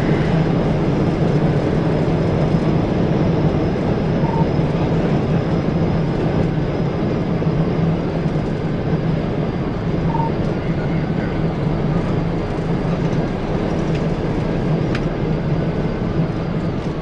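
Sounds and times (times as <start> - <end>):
low engine drone: 0.0 - 17.0
wind and road noise: 0.0 - 17.0
short faint beep: 10.1 - 10.4.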